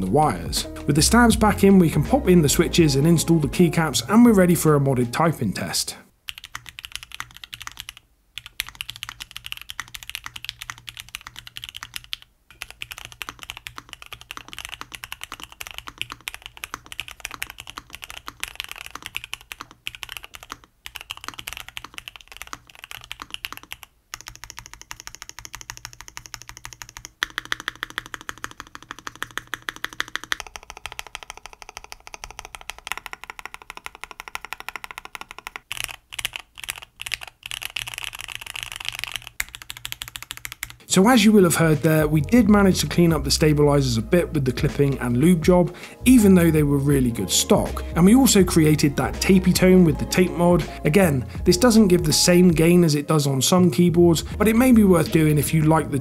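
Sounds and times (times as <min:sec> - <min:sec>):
mechanical keyboard typing: 0:06.3 - 0:40.8.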